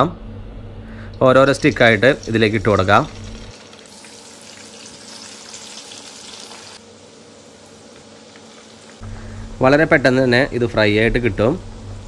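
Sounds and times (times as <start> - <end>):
potatoes sizzling in hot oil: 1.6 - 6.8.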